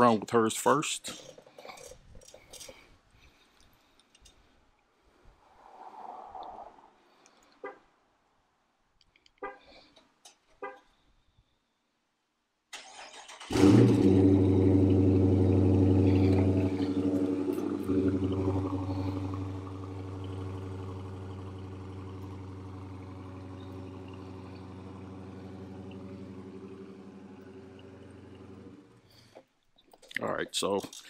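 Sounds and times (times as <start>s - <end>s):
car engine starting and idling: 12.7s - 29.4s.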